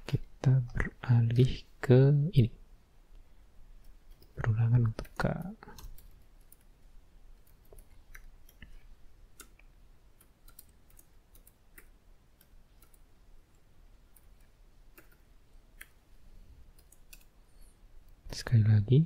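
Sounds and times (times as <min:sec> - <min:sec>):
computer keyboard typing: 0:03.8 - 0:06.7, 0:07.3 - 0:08.7, 0:10.2 - 0:16.0, 0:16.7 - 0:17.4.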